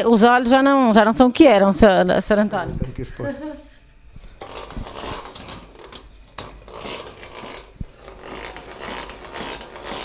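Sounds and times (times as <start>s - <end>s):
rollers grinding sheet metal: 4.4s - 10.0s.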